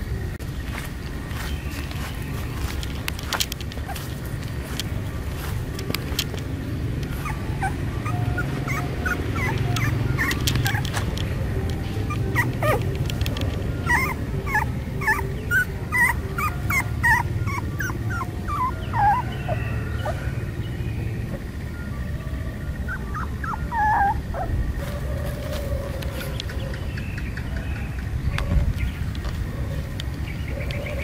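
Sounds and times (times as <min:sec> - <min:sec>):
steady low hum: 0:00.0 - 0:31.0
puppy whimpering and yipping: 0:07.0 - 0:20.3, 0:22.7 - 0:26.7.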